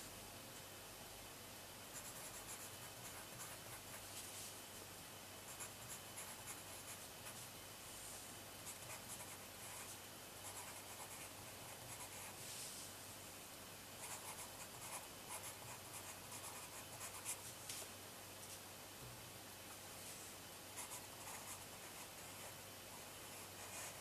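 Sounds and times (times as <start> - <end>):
pencil scratching on paper: 23.3 - 24.0.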